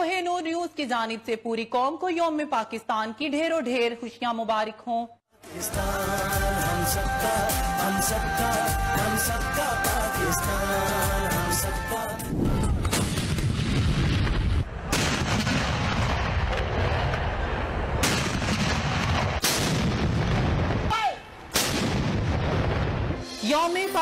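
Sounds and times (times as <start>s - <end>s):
artillery gun booms with echo: 21.5s - 23.0s.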